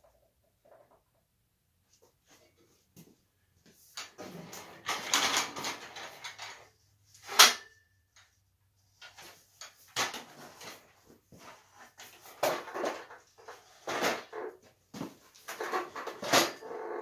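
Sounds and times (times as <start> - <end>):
metal work stand rattling: 4.1 - 7.8, 15.4 - 17.0.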